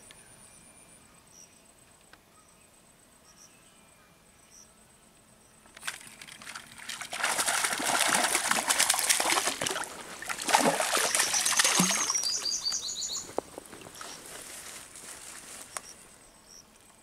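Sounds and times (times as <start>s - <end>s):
fish splashing in water: 5.8s - 12.7s.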